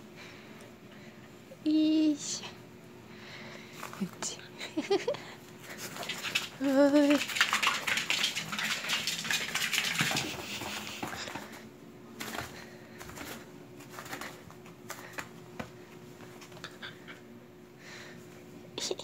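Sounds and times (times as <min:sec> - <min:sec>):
puppy claws clicking and scuffling: 0:12.2 - 0:17.0.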